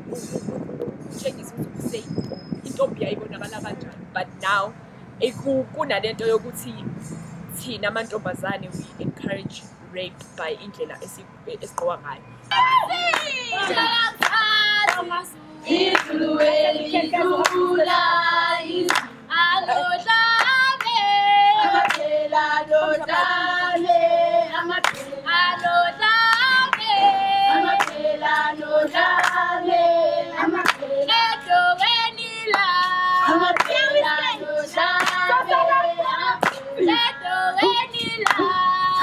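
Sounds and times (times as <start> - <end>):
girls singing together: 12.6 - 39.0
sharp hand claps: 13.1 - 13.3, 14.2 - 15.1, 15.9 - 16.2, 18.9 - 19.2, 20.3 - 21.0, 21.8 - 22.1, 24.8 - 25.7, 27.7 - 28.1, 29.2 - 29.4, 30.6 - 30.9, 32.5 - 33.9, 35.0 - 35.4, 36.4 - 36.7, 38.2 - 38.6.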